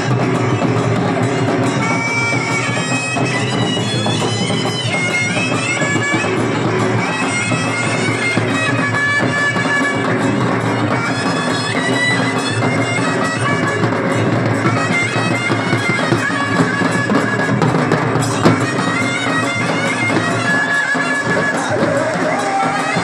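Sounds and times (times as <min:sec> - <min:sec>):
drums: 0:00.0 - 0:23.0
reedy bagpipe-like instrument: 0:00.0 - 0:23.0.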